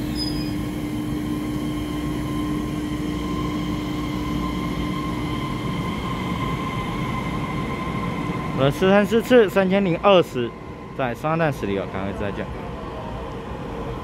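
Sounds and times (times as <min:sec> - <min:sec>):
train electric whine: 0:00.0 - 0:14.0.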